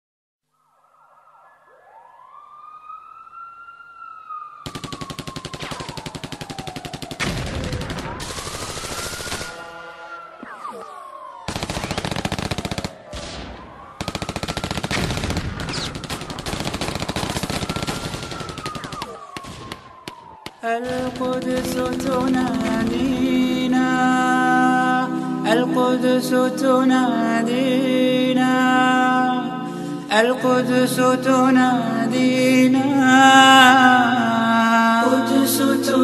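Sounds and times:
siren wailing: 0.4s - 26.4s
automatic gunfire: 4.6s - 9.7s, 11.5s - 20.2s, 20.8s - 23.3s.

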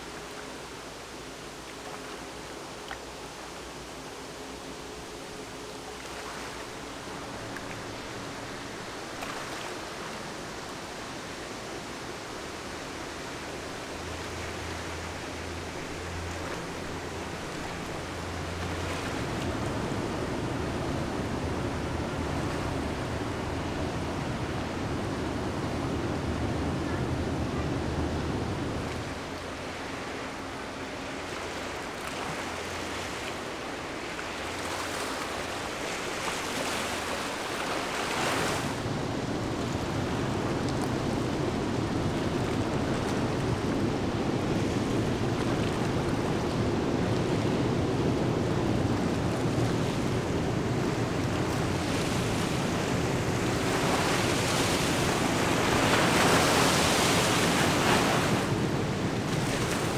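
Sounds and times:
ship low rumble: 2.3s - 59.9s
water wash: 4.4s - 59.9s
wind on microphone: 34.6s - 59.9s.

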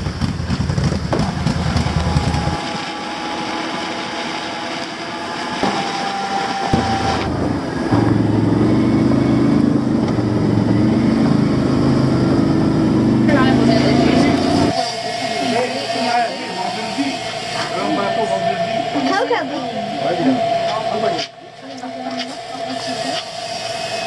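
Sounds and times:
quad bike engine running: 0.0s - 2.6s, 6.8s - 14.7s.

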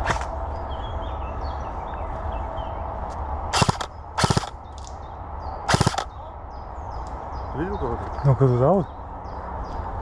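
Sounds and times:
airsoft rifle firing bursts: 3.6s - 4.5s, 5.7s - 6.1s.

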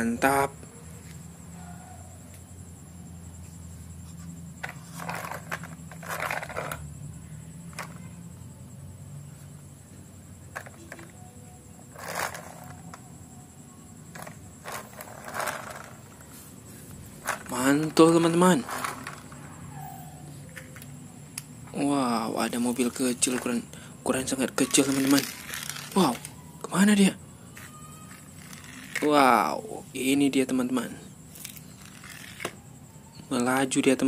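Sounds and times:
faint low hum: 0.0s - 34.0s
toy truck scraping on concrete: 4.2s - 6.9s, 11.9s - 13.0s, 14.1s - 16.5s, 17.2s - 19.4s, 24.7s - 26.3s, 28.1s - 29.2s, 31.4s - 32.6s.

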